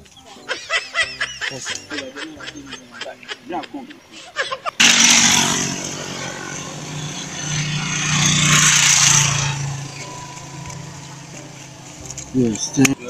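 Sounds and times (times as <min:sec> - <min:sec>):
vehicle passing on road: 0:04.7 - 0:12.8.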